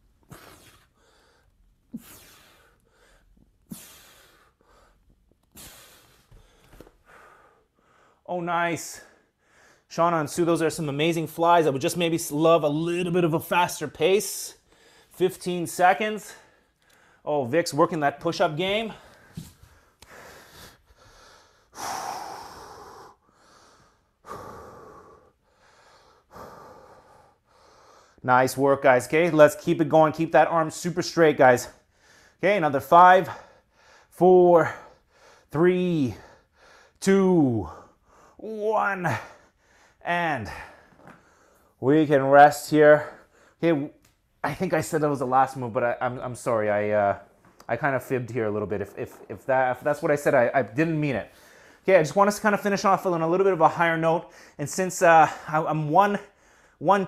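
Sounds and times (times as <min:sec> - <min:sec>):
man breathing out hard: 0:00.3 - 0:08.2, 0:18.9 - 0:28.2.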